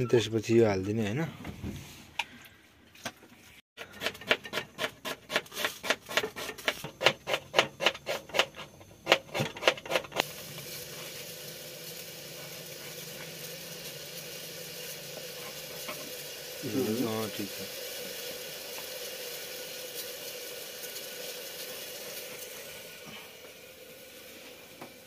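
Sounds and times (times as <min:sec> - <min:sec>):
frying hiss: 0:09.2 - 0:25.0.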